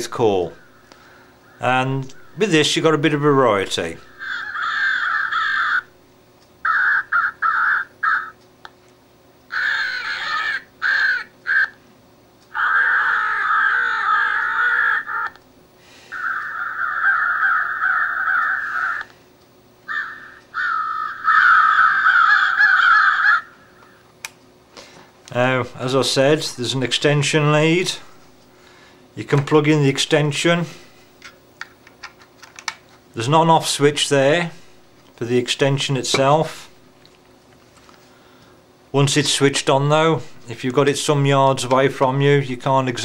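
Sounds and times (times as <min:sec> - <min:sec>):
recorded crows cawing from loudspeaker: 0:00.4 - 0:02.8, 0:03.7 - 0:06.0, 0:06.6 - 0:08.4, 0:09.5 - 0:11.8, 0:12.5 - 0:15.4, 0:16.1 - 0:19.2, 0:19.8 - 0:24.1.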